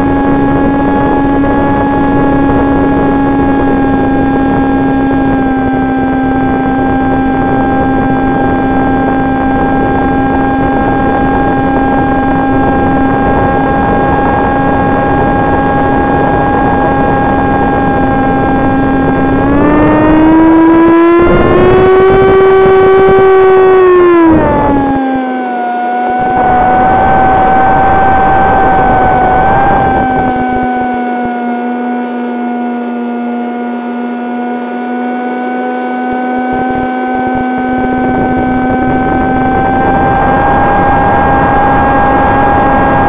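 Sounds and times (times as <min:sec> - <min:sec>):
electric motor propeller whine: 0:00.0 - 0:43.0
rushing air noise: 0:26.2 - 0:30.8.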